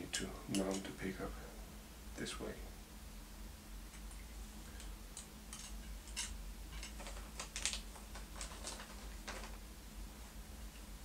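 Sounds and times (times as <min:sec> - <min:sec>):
clicks of small parts handled: 0:04.8 - 0:09.5.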